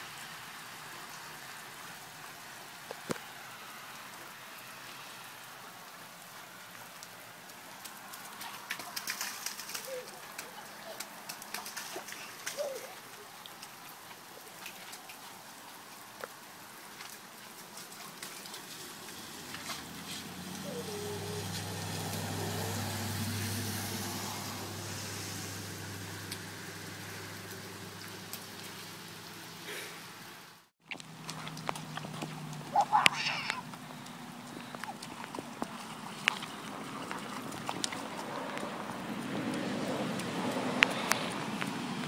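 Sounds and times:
feet splashing in puddles: 0.0s - 29.9s, 30.8s - 42.0s
passing vehicle engine hum: 18.6s - 29.6s, 31.1s - 42.0s.

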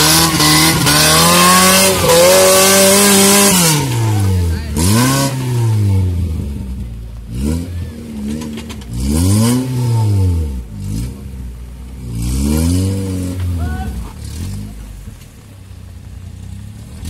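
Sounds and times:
off-road vehicle engine revving: 0.0s - 17.0s.

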